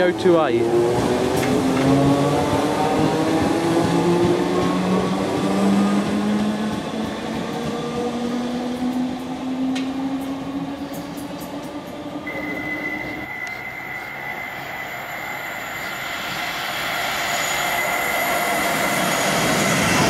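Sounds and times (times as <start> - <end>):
electric train motors whining: 9.2 - 20.0
steady high tone: 12.2 - 20.0.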